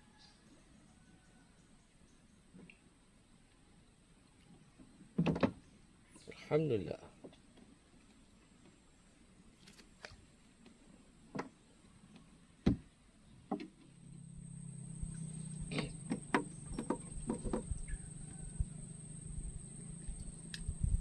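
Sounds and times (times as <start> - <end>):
steady low hum: 11.0 - 21.0
knocks on wooden boat: 12.6 - 12.8, 15.7 - 17.8.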